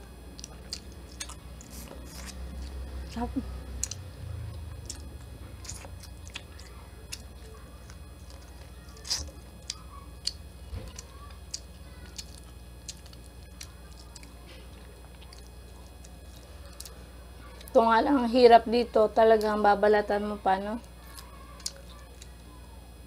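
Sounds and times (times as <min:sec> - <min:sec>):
steady low hum: 0:00.0 - 0:23.0
shrimp shell crackling as peeled: 0:08.2 - 0:09.8.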